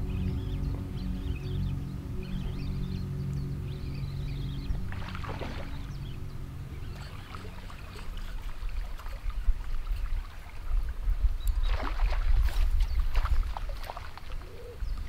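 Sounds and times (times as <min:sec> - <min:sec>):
background music: 0:00.0 - 0:08.9
low rumble: 0:00.0 - 0:11.4
lure splashing on water: 0:04.9 - 0:06.1, 0:06.9 - 0:14.7.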